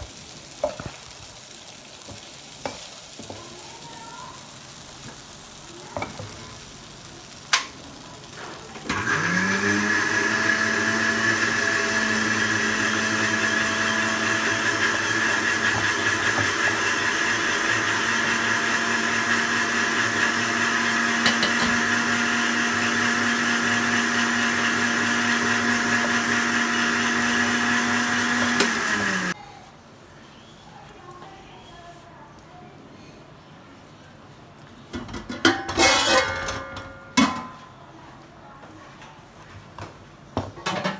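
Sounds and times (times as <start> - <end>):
blender motor whining: 8.9 - 29.4.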